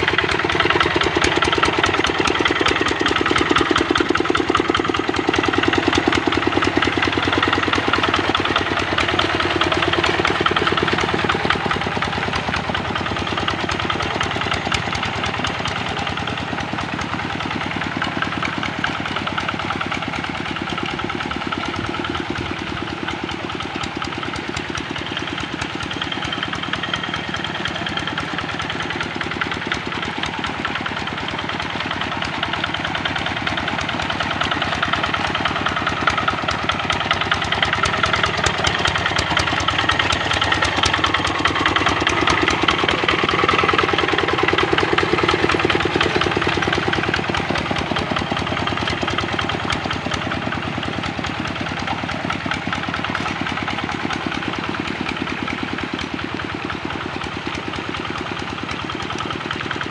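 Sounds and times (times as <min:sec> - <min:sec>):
diesel engine chugging: 0:00.0 - 0:59.9.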